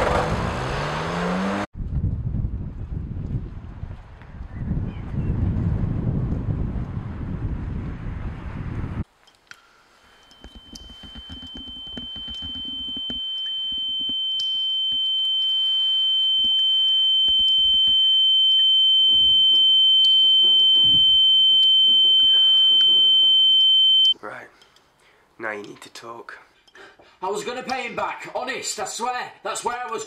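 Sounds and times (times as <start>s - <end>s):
high-pitched ringing tone: 10.0s - 24.2s.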